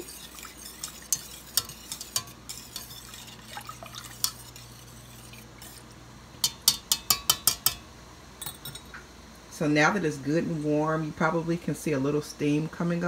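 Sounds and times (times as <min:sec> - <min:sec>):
liquid swishing: 0:00.0 - 0:06.6
whisk clicking against pan: 0:00.0 - 0:07.8.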